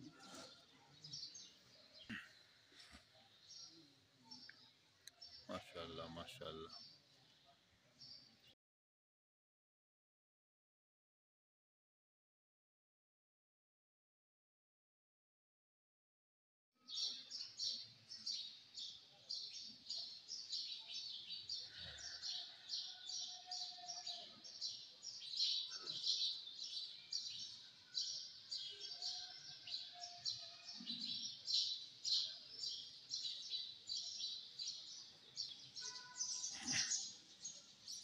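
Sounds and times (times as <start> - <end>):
small birds chirping: 0.0 - 8.6, 16.8 - 38.0.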